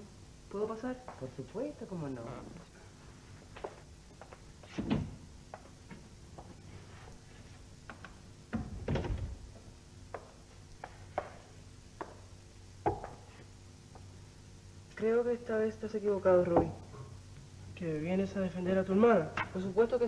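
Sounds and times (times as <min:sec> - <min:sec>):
faint steady hum: 0:00.0 - 0:20.0
footsteps and knocks on floor: 0:07.8 - 0:12.2.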